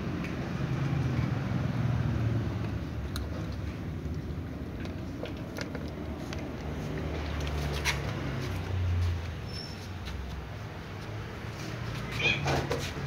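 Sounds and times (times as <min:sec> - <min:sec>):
cats crunching dry kibble: 0:02.5 - 0:09.2.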